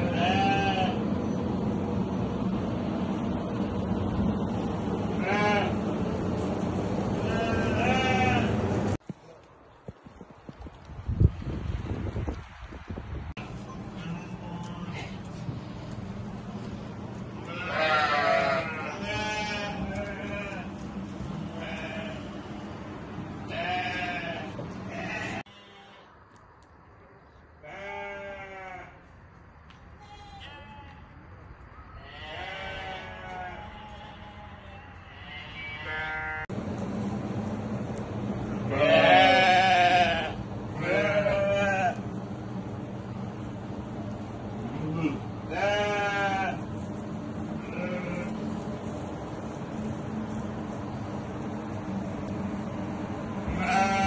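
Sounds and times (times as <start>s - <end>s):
goats bleating: 0.0s - 1.0s, 5.2s - 5.8s, 7.2s - 8.6s, 13.4s - 22.7s, 23.5s - 26.1s, 27.6s - 29.0s, 30.0s - 31.1s, 32.0s - 36.5s, 38.7s - 42.1s, 44.6s - 46.7s, 47.6s - 48.5s, 53.5s - 54.0s.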